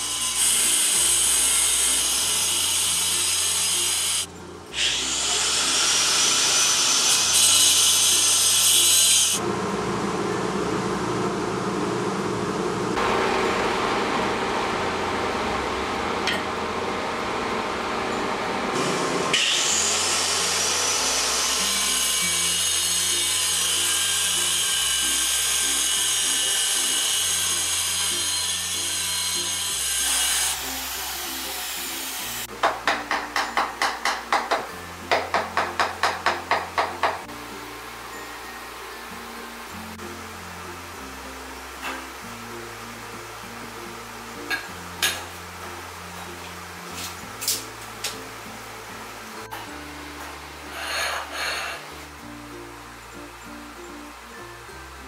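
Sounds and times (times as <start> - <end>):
power tool cutting tile: 0.0 - 9.4, 18.8 - 32.5.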